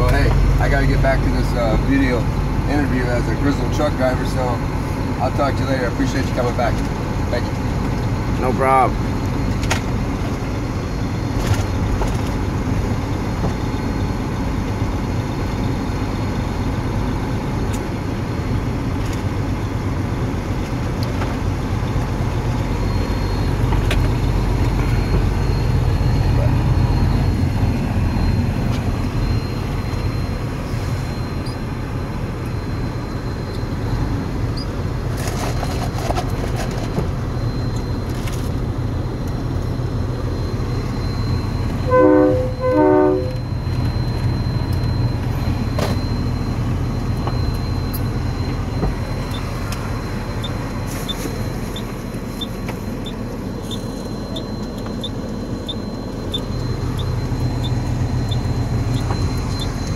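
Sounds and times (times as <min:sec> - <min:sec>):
truck engine and road drone: 0:00.0 - 0:59.9
horn toots: 0:41.8 - 0:43.5
faint regular ticking: 0:51.8 - 0:59.9.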